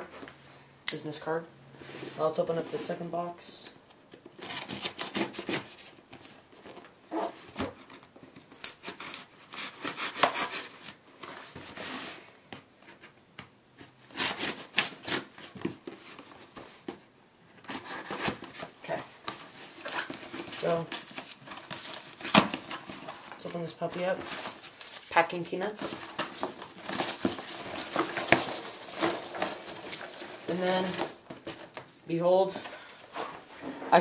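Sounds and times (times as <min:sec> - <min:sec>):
cardboard rubbing and rustling: 0:17.6 - 0:31.9.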